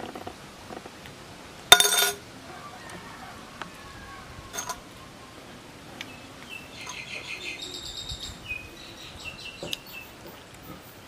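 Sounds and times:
small bird chirping: 0:06.0 - 0:11.0.

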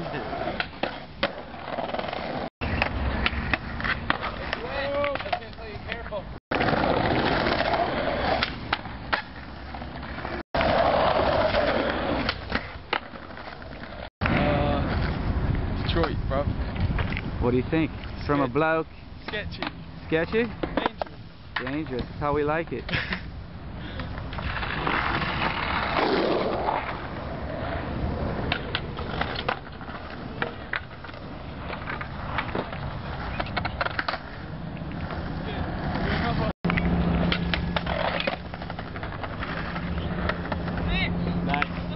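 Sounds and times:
skateboard wheels rolling on paving: 0:00.0 - 0:41.9
skateboard clacking on ground: 0:00.1 - 0:09.4, 0:10.0 - 0:15.1, 0:19.2 - 0:22.1, 0:28.4 - 0:35.2, 0:35.8 - 0:41.9.

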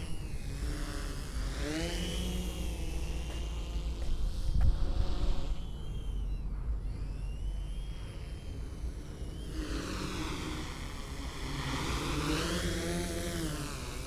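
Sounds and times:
low steady rumble: 0:00.0 - 0:12.0
drone motors and propellers whining: 0:00.0 - 0:14.0.

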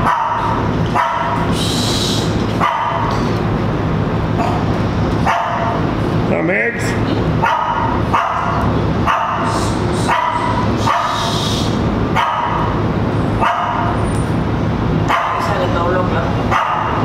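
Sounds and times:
dog barking: 0:00.0 - 0:01.5, 0:02.6 - 0:03.1, 0:05.2 - 0:05.8, 0:07.4 - 0:11.4, 0:12.2 - 0:12.8, 0:13.4 - 0:14.0, 0:15.1 - 0:15.7, 0:16.5 - 0:17.0
steady low hum: 0:00.0 - 0:17.0.

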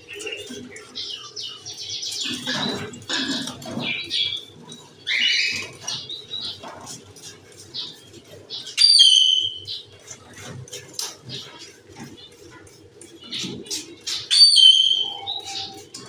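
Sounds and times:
birds chirping: 0:00.0 - 0:16.0
loud held bird call: 0:14.3 - 0:15.9.

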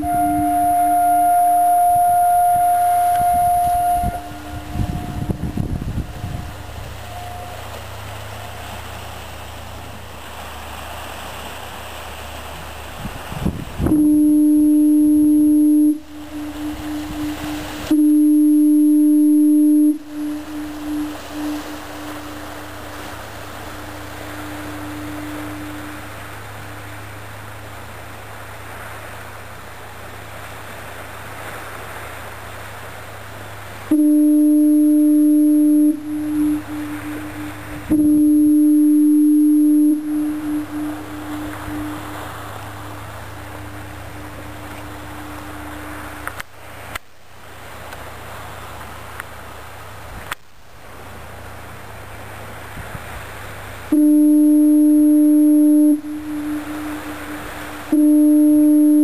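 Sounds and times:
faint foghorn tone: 0:00.0 - 0:50.2, 0:51.0 - 0:59.0
outdoor hiss: 0:00.0 - 0:59.0
steady low rumble: 0:00.0 - 0:59.0.

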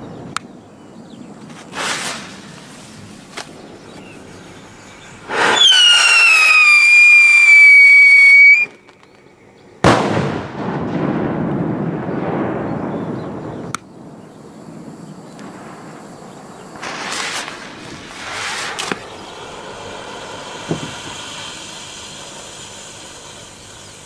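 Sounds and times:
hissing noise: 0:01.4 - 0:08.9, 0:15.2 - 0:24.0
firework bang: 0:01.6 - 0:03.6, 0:05.3 - 0:08.8, 0:09.8 - 0:13.7, 0:15.4 - 0:23.9
firework shrill whistle: 0:01.7 - 0:03.0, 0:05.2 - 0:08.9, 0:16.8 - 0:24.0.

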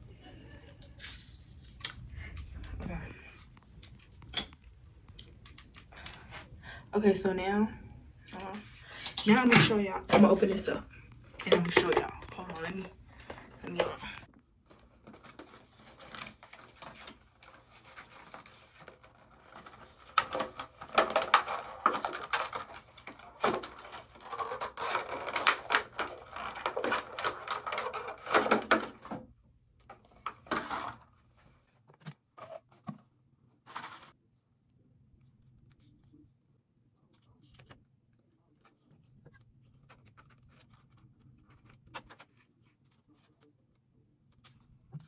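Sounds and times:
cardboard box and plastic packaging handled: 0:11.4 - 0:34.2, 0:37.1 - 0:45.0.

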